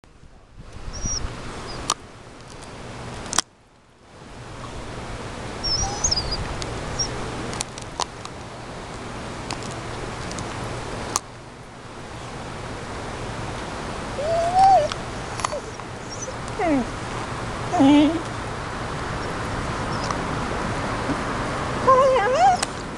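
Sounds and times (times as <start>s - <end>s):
birds chirping: 0.9s - 1.9s, 5.6s - 7.2s, 14.2s - 20.4s.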